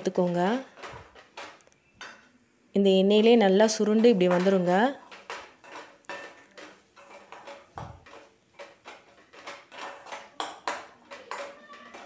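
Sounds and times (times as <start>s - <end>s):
spoon scraping a metal pan: 3.2s - 12.0s.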